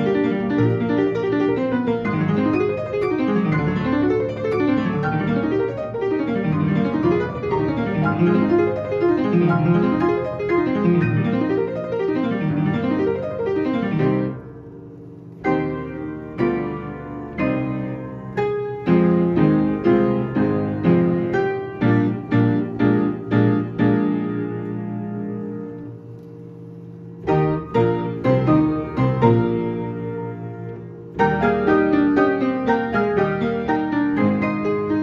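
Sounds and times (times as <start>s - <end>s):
player piano playing: 0.0s - 35.0s.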